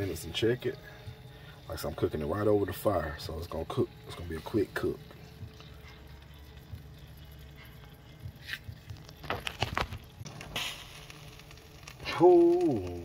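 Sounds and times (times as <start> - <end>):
meat sizzling on grill: 0.0 - 13.0
crackles and pops: 3.7 - 13.0.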